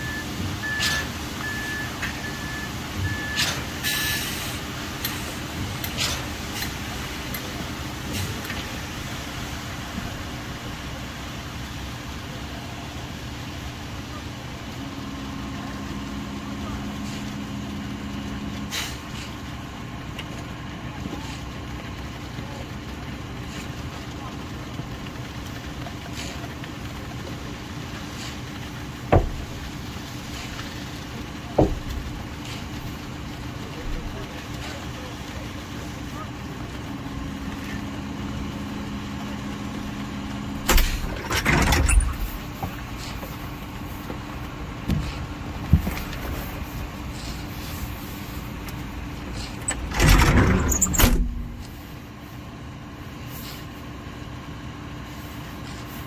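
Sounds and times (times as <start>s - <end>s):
heavy engine running: 0.0s - 56.0s
loud knocks: 29.1s - 29.6s, 31.6s - 32.0s.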